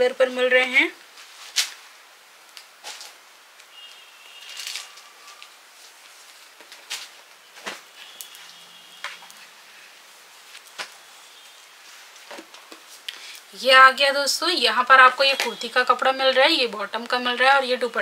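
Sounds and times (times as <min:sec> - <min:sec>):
fabric rustling: 0:00.6 - 0:02.1, 0:02.7 - 0:03.3, 0:03.9 - 0:13.1.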